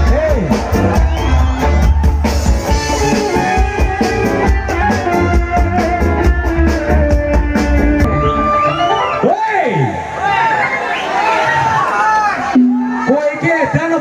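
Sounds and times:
drum kit beating: 0:00.0 - 0:09.0, 0:12.6 - 0:13.1
live band playing instrumental: 0:00.0 - 0:09.4, 0:12.5 - 0:13.5.

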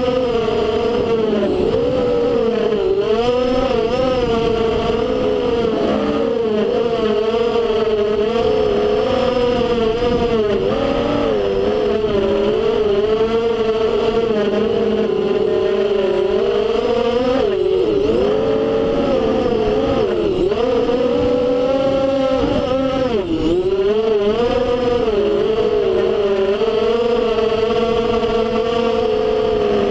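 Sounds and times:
drone motors whining: 0:00.0 - 0:29.9.

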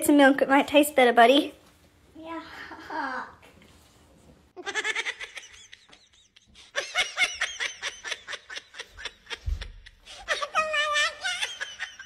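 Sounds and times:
people laughing: 0:04.6 - 0:12.0.

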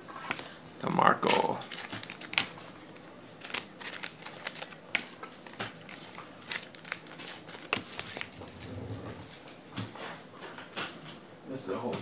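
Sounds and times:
cards clicking and rustling: 0:01.2 - 0:08.6.

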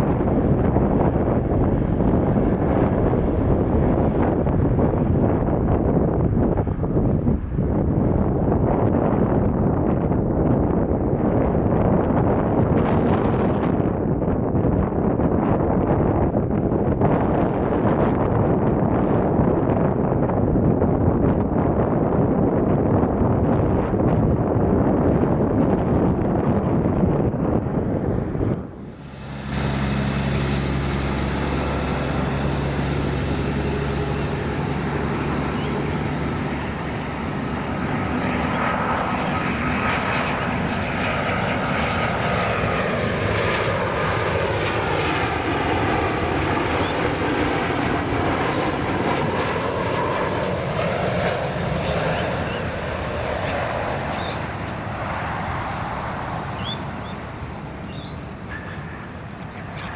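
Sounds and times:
airliner engines roaring: 0:00.0 - 0:59.9.

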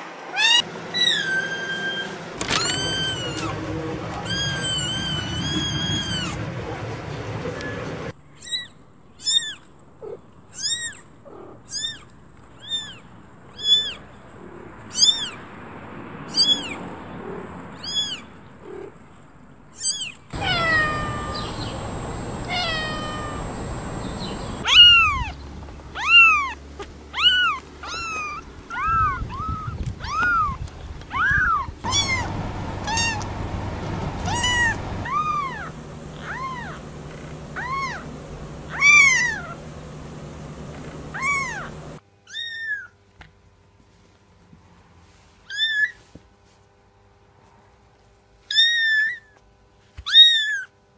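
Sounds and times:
cats meowing: 0:00.3 - 0:06.4, 0:19.8 - 0:25.3, 0:27.2 - 0:39.6, 0:41.1 - 0:42.9
high-pitched kitten mews: 0:19.8 - 0:21.7, 0:22.4 - 0:23.6, 0:34.2 - 0:36.8, 0:37.6 - 0:38.0, 0:41.2 - 0:41.7.

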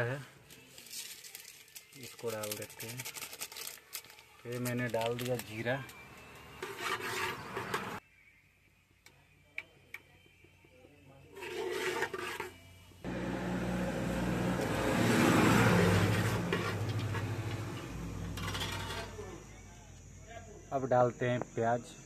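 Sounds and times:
metal spatula stirring in pot: 0:06.5 - 0:08.0, 0:11.3 - 0:12.6, 0:15.8 - 0:19.2.

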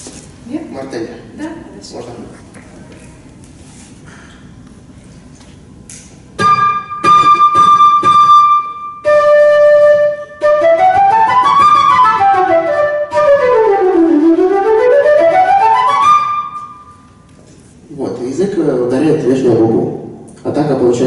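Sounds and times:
flute playing accented notes: 0:06.4 - 0:17.1.

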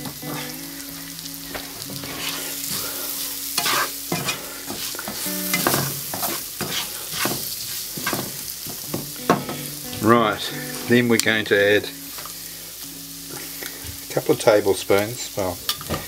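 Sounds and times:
onions and spices sizzling in oil: 0:00.0 - 0:16.0
spatula scraping a frying pan: 0:00.3 - 0:00.6, 0:02.0 - 0:08.3.

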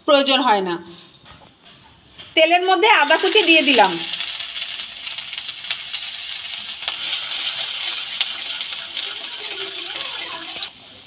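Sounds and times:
ginger sizzling in hot oil: 0:03.0 - 0:11.0.

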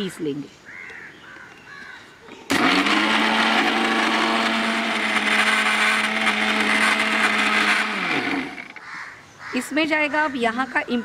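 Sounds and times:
mixer grinder running: 0:02.5 - 0:08.8.

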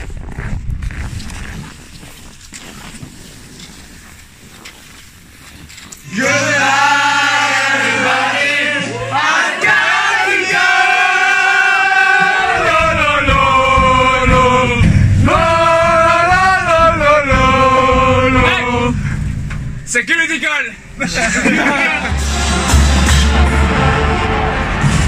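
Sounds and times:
men singing together: 0:06.0 - 0:19.0
low rumble: 0:12.1 - 0:19.9.

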